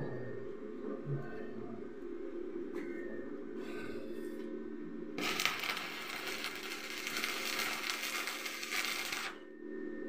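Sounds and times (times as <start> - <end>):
steady low hum: 0.0 - 10.0
arc welding crackling: 5.2 - 9.4.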